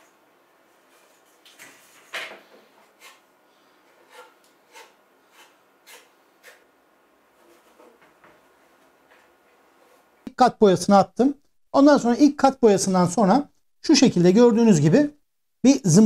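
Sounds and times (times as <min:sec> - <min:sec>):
putty knife scraping: 0:02.9 - 0:03.3, 0:03.9 - 0:06.7.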